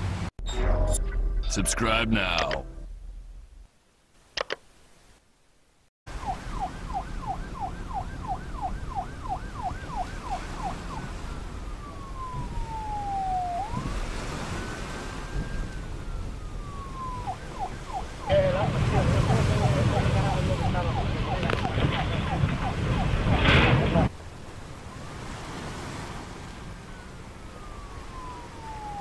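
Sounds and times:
electronic emergency siren: 0:06.1 - 0:24.1, 0:26.7 - 0:29.0.

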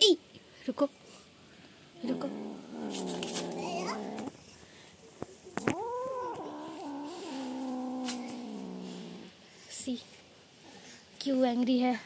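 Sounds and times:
kitten growling yowl: 0:02.0 - 0:04.4, 0:05.6 - 0:09.3.

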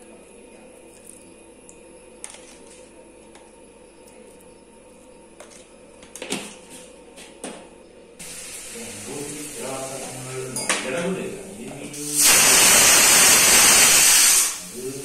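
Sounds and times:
pressure cooker hiss: 0:08.2 - 0:10.6, 0:11.9 - 0:15.0.

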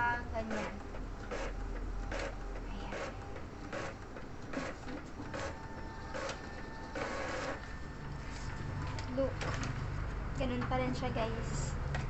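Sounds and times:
printer mechanical stroke: 0:00.5 - 0:08.6.

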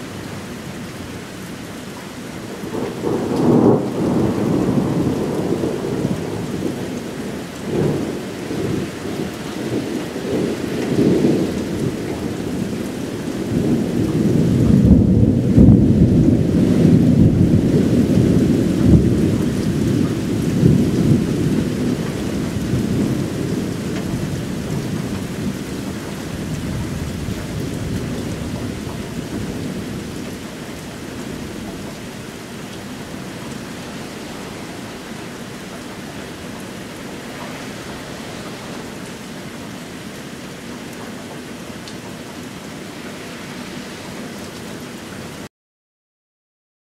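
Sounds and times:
steady rain: 0:00.0 - 0:45.5
thunder rolling: 0:02.7 - 0:06.9, 0:07.6 - 0:32.2.

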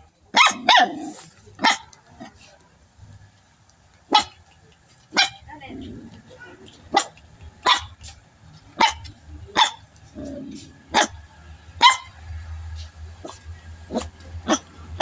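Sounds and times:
puppy barking: 0:00.3 - 0:02.4, 0:04.1 - 0:05.5, 0:06.9 - 0:10.3, 0:10.9 - 0:11.2, 0:11.8 - 0:12.2, 0:13.2 - 0:15.0.

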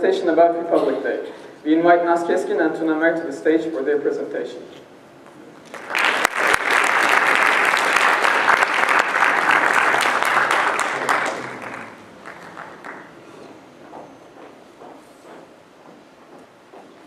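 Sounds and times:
audience applause: 0:05.7 - 0:13.2.

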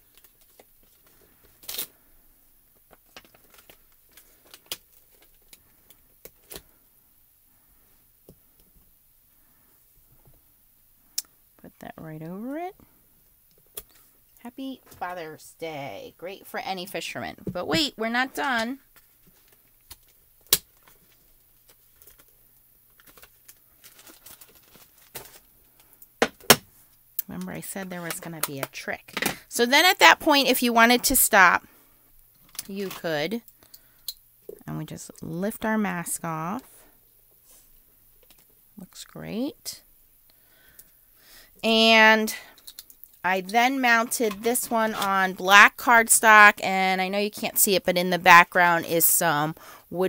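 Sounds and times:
light plastic clicks and crinkles: 0:00.0 - 0:02.1, 0:02.7 - 0:06.8, 0:13.4 - 0:15.0, 0:18.4 - 0:26.2, 0:32.3 - 0:35.3, 0:38.2 - 0:38.6, 0:42.3 - 0:45.2.

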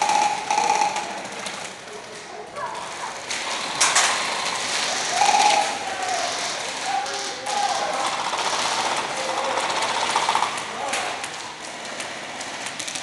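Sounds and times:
airsoft guns clicking and firing: 0:00.0 - 0:13.0
players shouting: 0:04.6 - 0:11.5.

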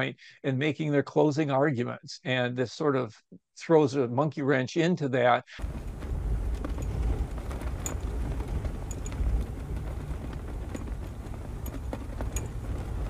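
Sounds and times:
flag flapping: 0:05.6 - 0:13.0
wind buffeting microphone: 0:05.6 - 0:13.0.

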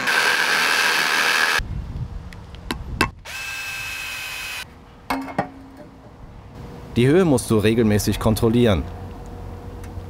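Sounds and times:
drill-driver whining: 0:00.0 - 0:01.6, 0:03.2 - 0:04.6
power drill boring into concrete: 0:00.0 - 0:01.6, 0:03.2 - 0:04.6.

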